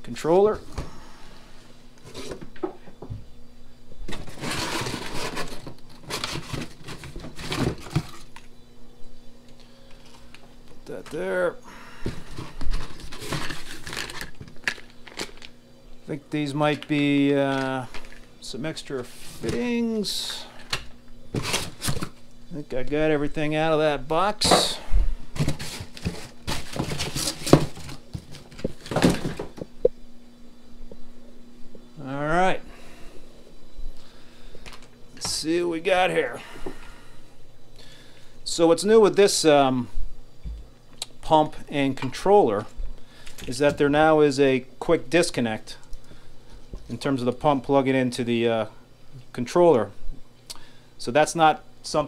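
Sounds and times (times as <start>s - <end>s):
faint steady hum: 0.0s - 52.0s
packaging rustling and scraping: 2.0s - 2.4s, 4.1s - 8.5s, 12.0s - 15.6s, 17.5s - 18.3s, 20.7s - 22.3s, 25.3s - 29.7s.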